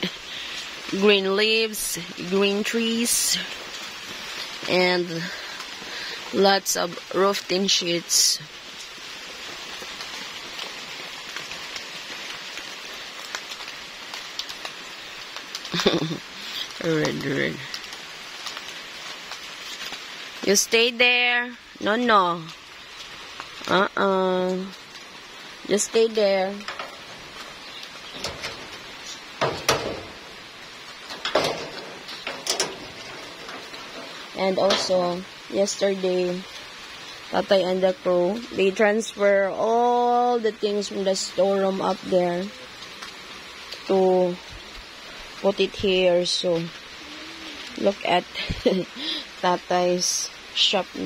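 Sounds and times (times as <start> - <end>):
light rain falling: 0.0 - 51.0
sharp knocks: 29.4 - 30.2.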